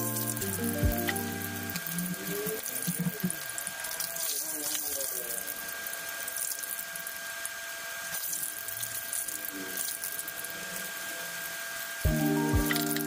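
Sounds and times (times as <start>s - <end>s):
music: 0.0s - 2.0s, 12.0s - 13.0s.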